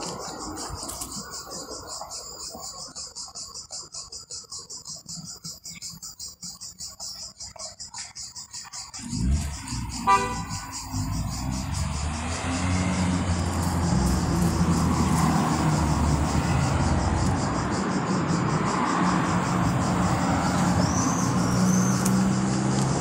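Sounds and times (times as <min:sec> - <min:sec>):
crickets chirping: 0:00.0 - 0:23.0
vehicle engine starting and running: 0:08.6 - 0:23.0
car horn toot: 0:10.0 - 0:10.7.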